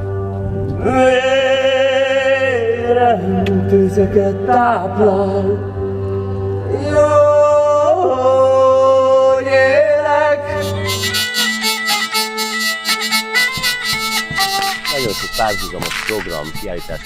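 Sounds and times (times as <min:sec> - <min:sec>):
person singing folk melody: 0:06.6 - 0:17.0
hurdy-gurdy playing: 0:10.5 - 0:17.0.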